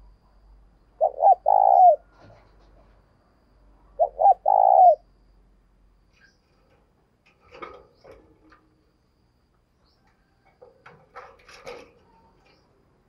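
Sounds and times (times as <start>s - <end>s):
bird moving in wire cage: 6.1s - 9.1s, 9.8s - 13.0s.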